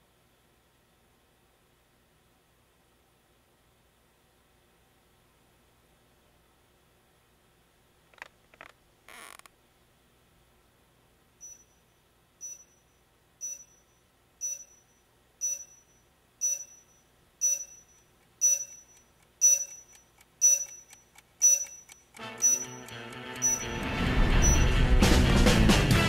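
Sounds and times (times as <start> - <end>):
electronic beeper beeping: 11.4 - 11.6, 12.4 - 12.7, 13.4 - 13.8, 14.4 - 14.8, 15.4 - 15.8, 16.4 - 24.9
music: 22.2 - 26.0.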